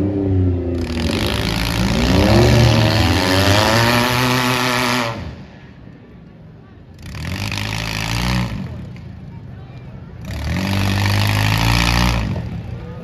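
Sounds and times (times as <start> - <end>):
car engine revving hard: 0.8 - 5.4, 10.2 - 12.6.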